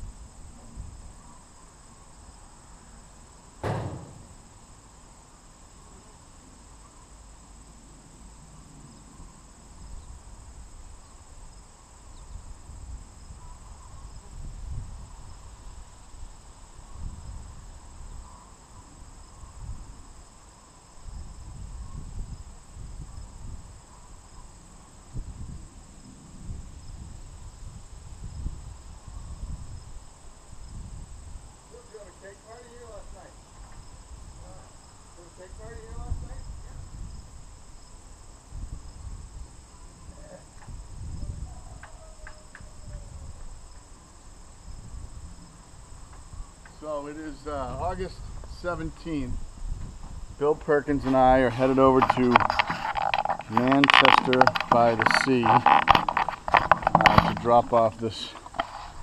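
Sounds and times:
wind rumbling on microphone: 0.0 - 1.3, 8.8 - 20.2, 21.0 - 31.8, 35.4 - 46.6, 47.4 - 59.0
insects trilling: 0.0 - 59.0
sharp knock: 3.6 - 4.5.

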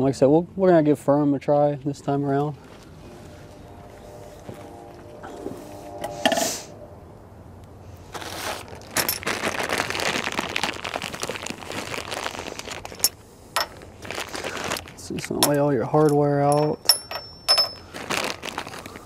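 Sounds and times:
plastic bag crinkling: 8.1 - 16.8, 17.6 - 19.0.

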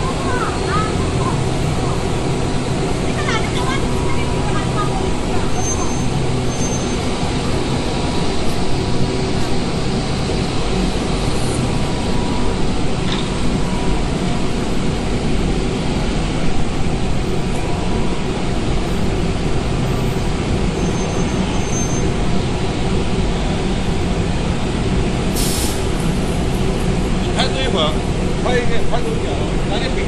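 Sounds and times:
short hiss: 25.3 - 26.0.

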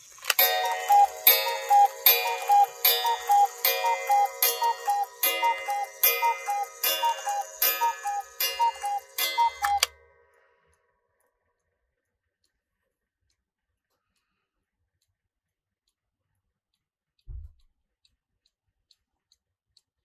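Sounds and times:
cuckoo clock two-note call: 0.3 - 10.0.

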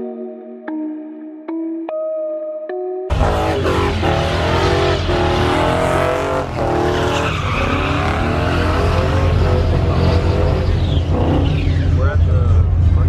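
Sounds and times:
tires squealing on pavement: 3.1 - 12.1
truck engine revving: 3.1 - 13.0.

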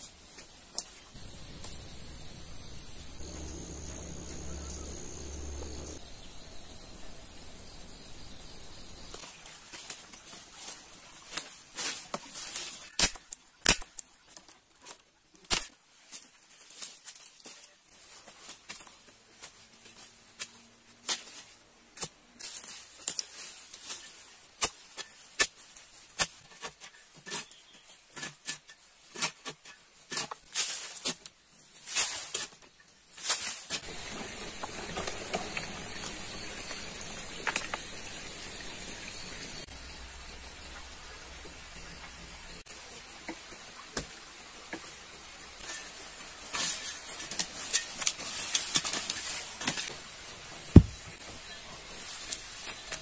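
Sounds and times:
steady hiss: 0.0 - 10.0, 33.2 - 53.0.

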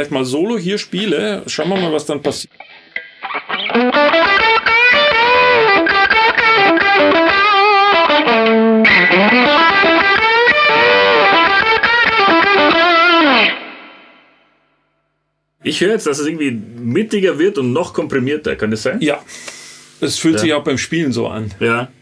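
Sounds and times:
fuzzed electric guitar solo: 2.5 - 14.4.

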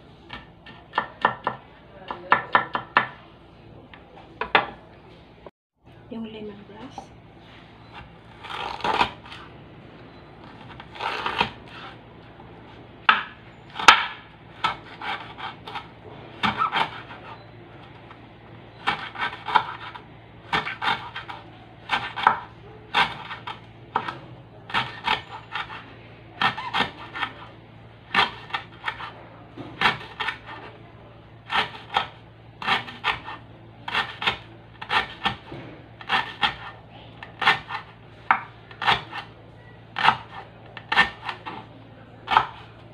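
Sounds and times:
knife chopping on wooden board: 0.3 - 3.2, 10.6 - 12.0, 13.0 - 17.3, 18.8 - 25.8, 26.4 - 27.4, 28.1 - 30.7, 31.5 - 39.3, 40.0 - 41.6, 42.3 - 42.7.

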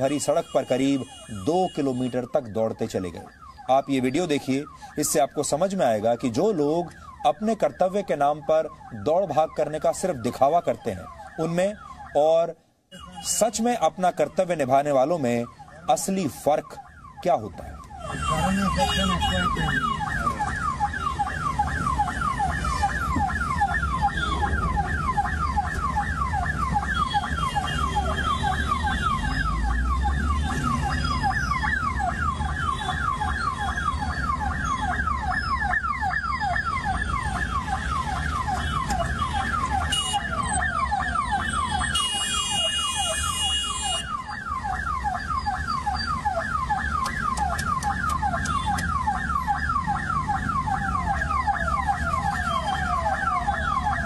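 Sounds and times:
ambulance siren wailing: 0.0 - 54.0.

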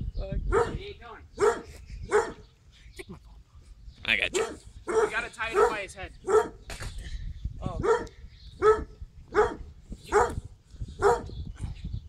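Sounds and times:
dog barking: 0.5 - 0.8, 1.4 - 2.4, 4.3 - 6.6, 7.8 - 10.4, 11.0 - 11.3.

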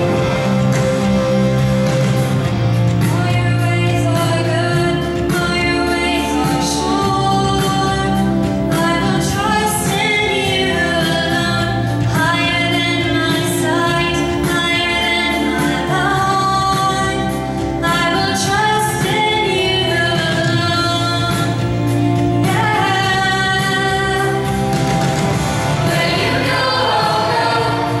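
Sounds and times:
youth choir singing: 3.6 - 20.2, 22.1 - 24.6, 25.5 - 28.0.

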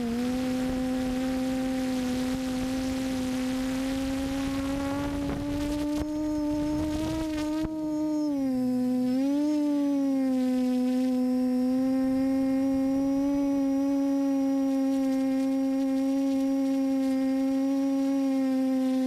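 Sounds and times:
model aircraft motor droning: 0.0 - 19.0.

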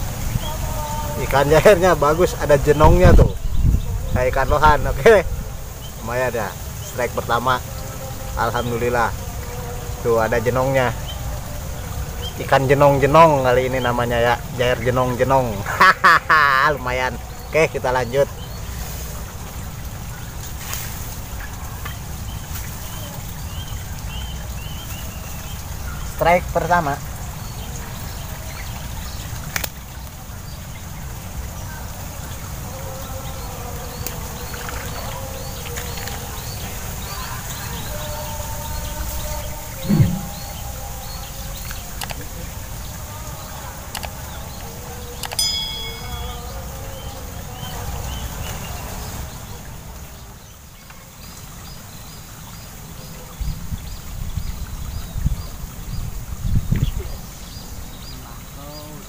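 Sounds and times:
wind rumble on microphone: 0.0 - 6.0, 38.8 - 41.1, 53.3 - 57.9
bird chirping: 35.2 - 42.2, 44.9 - 48.8
short high chirps: 39.8 - 40.6, 45.4 - 46.6.

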